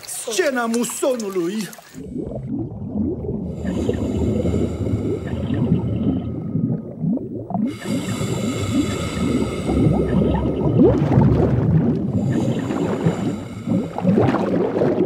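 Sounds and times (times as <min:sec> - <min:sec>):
bubbling and gurgling: 0:00.0 - 0:15.0
steady high drone: 0:07.7 - 0:11.2.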